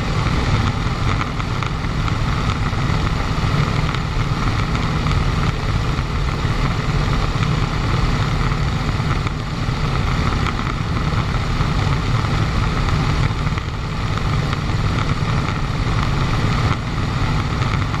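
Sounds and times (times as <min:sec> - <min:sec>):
piston aircraft engine droning: 0:00.0 - 0:18.0.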